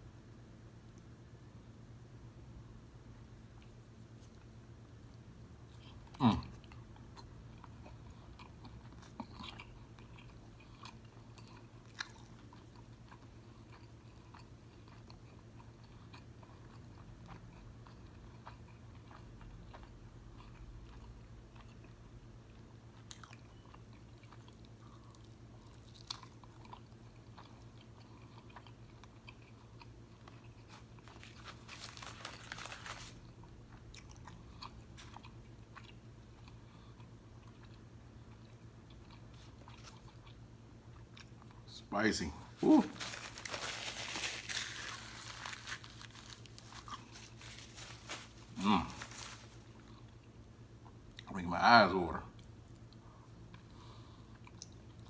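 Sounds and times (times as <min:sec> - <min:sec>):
faint low hum: 0:00.0 - 0:55.0
wet chewing: 0:06.6 - 0:21.9, 0:22.9 - 0:41.7, 0:42.9 - 0:51.2
crunching: 0:42.6 - 0:49.9.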